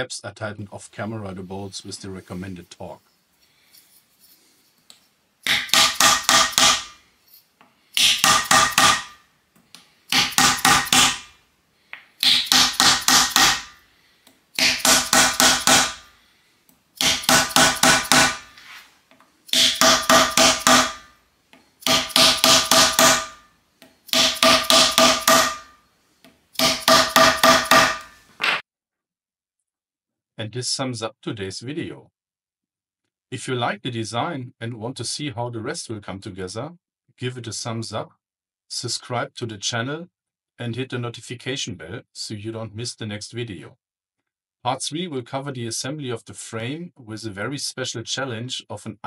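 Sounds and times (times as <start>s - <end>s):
hammer striking wooden block: 5.4s - 7.0s, 8.0s - 9.2s, 10.1s - 11.3s, 12.2s - 13.8s, 14.6s - 16.1s, 17.0s - 18.5s, 19.5s - 21.1s, 21.8s - 25.8s, 26.6s - 28.6s.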